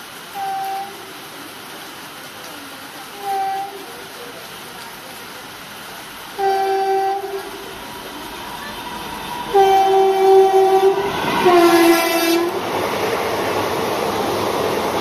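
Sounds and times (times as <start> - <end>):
train running by: 0.0 - 15.0
train horn blasts: 0.3 - 1.0, 3.2 - 3.8, 6.4 - 7.8, 9.2 - 12.7.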